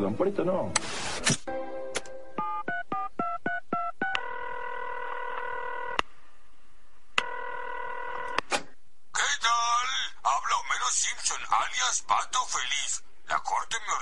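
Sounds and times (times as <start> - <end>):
telephone ringing tone: 2.4 - 6.0, 7.2 - 8.4.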